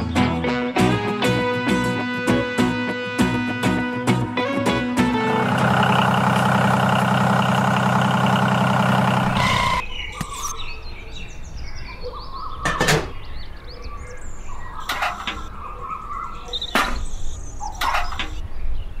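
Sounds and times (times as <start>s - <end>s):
small engine droning: 5.0s - 9.8s
birds chirping: 5.2s - 19.0s.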